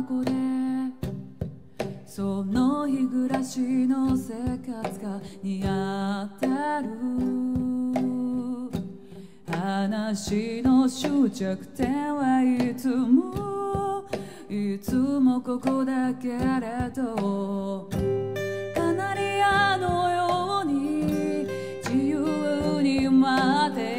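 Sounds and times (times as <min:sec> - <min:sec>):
woman singing: 0:00.0 - 0:23.9
strummed acoustic guitar: 0:15.6 - 0:23.9.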